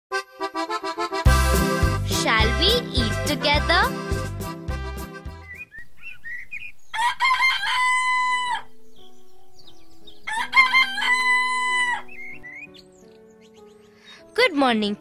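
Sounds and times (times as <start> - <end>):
soft background music: 1.3 - 5.8, 6.8 - 15.0
rooster crowing: 6.9 - 8.8, 10.2 - 12.2.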